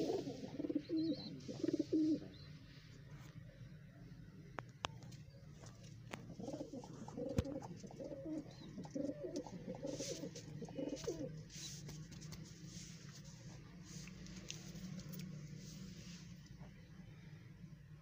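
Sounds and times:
pigeons cooing: 0.0 - 2.6, 6.1 - 11.5.

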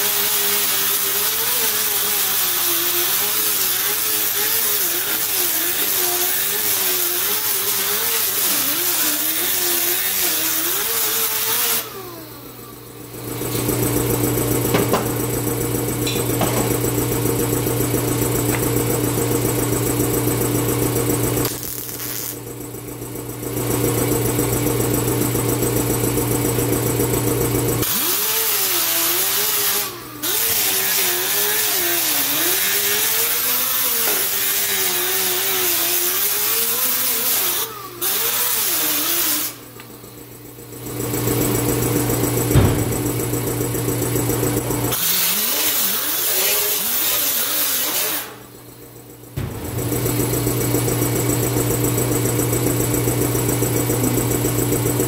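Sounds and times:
welder arc buzzing and crackling: 0.0 - 12.0, 21.0 - 22.5, 27.8 - 39.9, 41.7 - 48.5, 49.4 - 54.8
angle grinder grinding metal: 0.0 - 12.5, 21.4 - 22.4, 27.8 - 39.9, 44.9 - 48.6.

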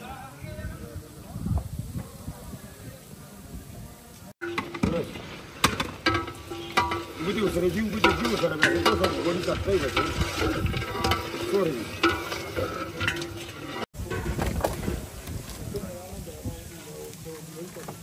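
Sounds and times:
metal knocking on metal: 4.4 - 14.2
metal ladle scraping a pot: 4.4 - 15.0
sizzling hiss: 14.8 - 18.0.

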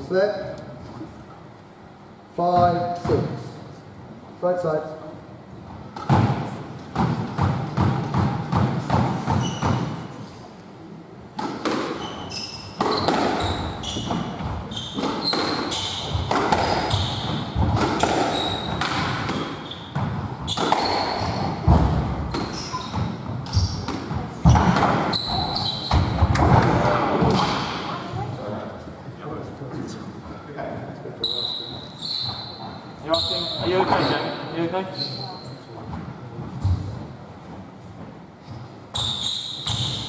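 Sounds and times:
squash ball hitting rackets and walls: 2.5 - 3.4, 5.7 - 10.2, 11.3 - 28.0, 39.0 - 40.0
shoes squeaking on wooden floor: 8.8 - 10.1, 11.8 - 26.4, 31.2 - 40.0.

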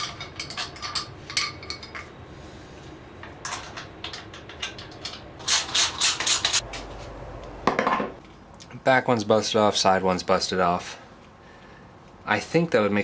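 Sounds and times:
metal clicks and clinks: 0.0 - 2.1.

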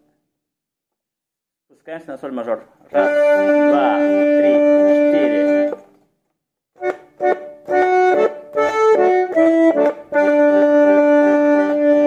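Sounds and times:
button accordion playing: 2.9 - 5.8, 6.8 - 12.0.

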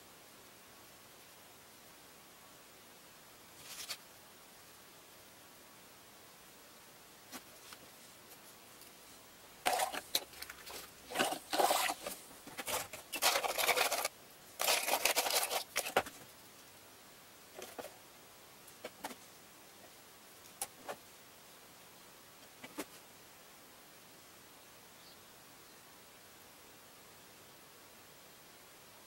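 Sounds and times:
plastic bag rustling and rattling: 9.6 - 16.3, 17.6 - 18.0.

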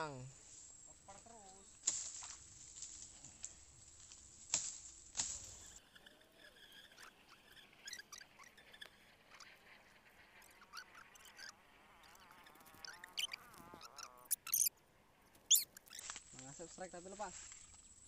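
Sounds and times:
high animal chirps: 5.8 - 9.5, 10.4 - 14.7, 15.4 - 16.1.

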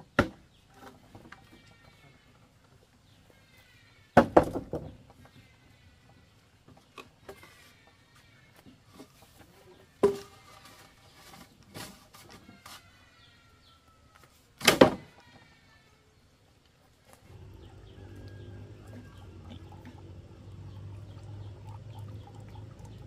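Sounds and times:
steady low hum: 17.3 - 23.0.

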